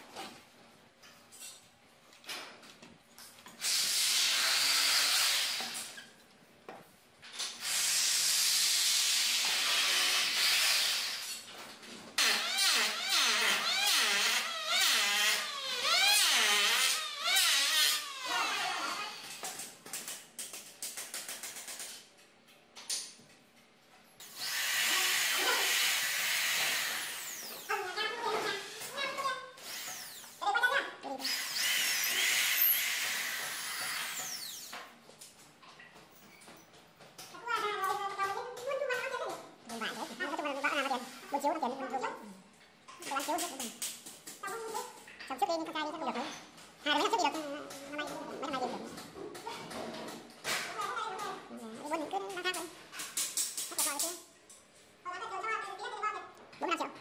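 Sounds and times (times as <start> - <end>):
electric drill whirring: 3.6 - 5.9, 7.6 - 11.4, 12.2 - 19.4, 24.2 - 27.7, 29.6 - 30.4, 31.2 - 34.8.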